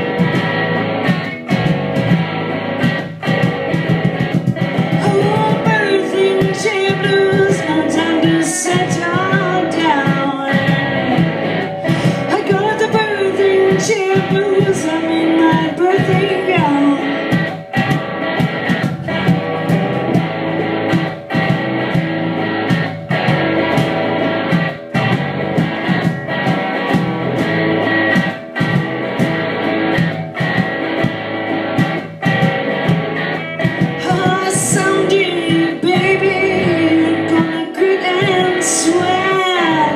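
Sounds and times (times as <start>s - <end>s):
band with electric guitar and bass: 0.0s - 39.9s
woman singing: 5.0s - 17.6s, 33.9s - 39.9s.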